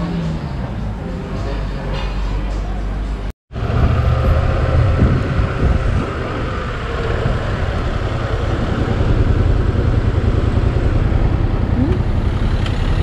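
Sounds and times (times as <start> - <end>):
wind on microphone: 3.6 - 12.0
motorcycle engine running: 3.6 - 13.0.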